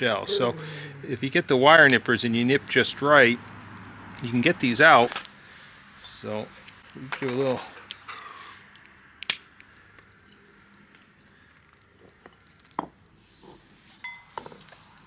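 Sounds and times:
wire nippers cracking shell: 7.8 - 12.8.

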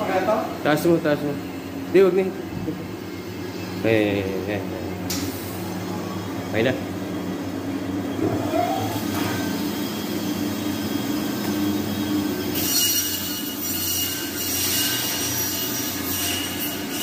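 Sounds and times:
meat band saw running: 7.7 - 17.0.

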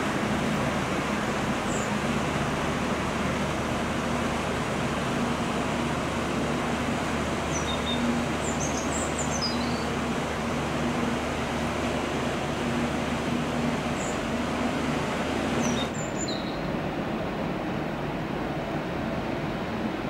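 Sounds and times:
ship engines droning: 0.0 - 20.0
water wash: 0.0 - 20.0
bird chirping: 7.5 - 9.9, 15.6 - 16.7.

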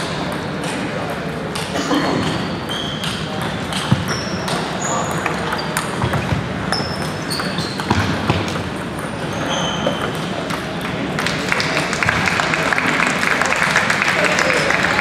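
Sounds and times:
background chatter: 0.0 - 15.0
shoe squeaks on wooden floor: 2.2 - 8.2, 9.1 - 10.3.

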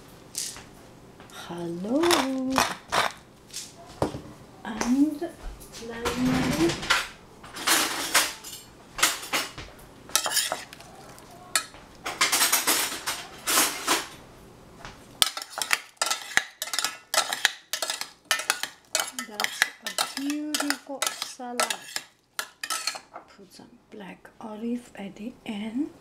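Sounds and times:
metal spoon scraping a saucepan: 10.1 - 13.8, 15.2 - 23.1.

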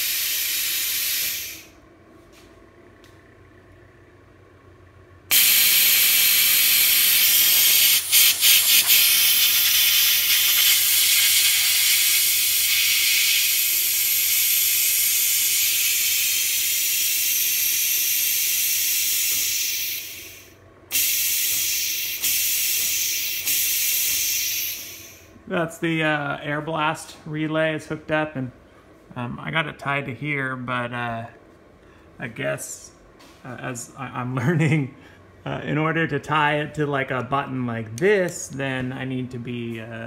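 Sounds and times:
compressed-air blast hissing: 0.0 - 1.8, 5.3 - 25.3.

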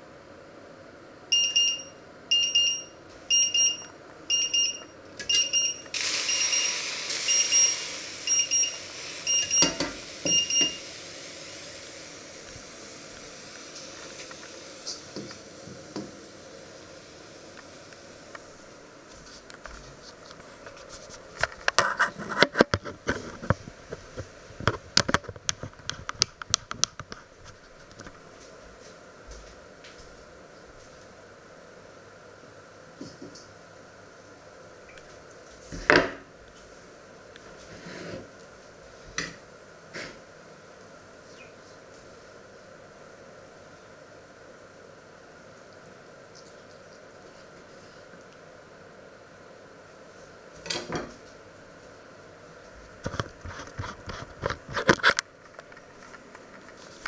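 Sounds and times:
kitchen timer beeping: 1.3 - 10.9
hiss: 5.9 - 18.6.

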